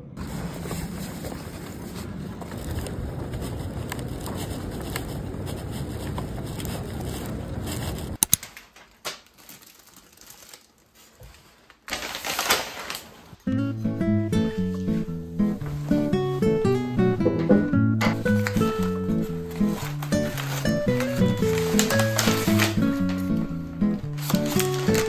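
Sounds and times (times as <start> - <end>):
outdoor rumble and hiss: 0.0 - 8.3
wrapping paper rustling: 0.2 - 13.4, 14.6 - 25.0.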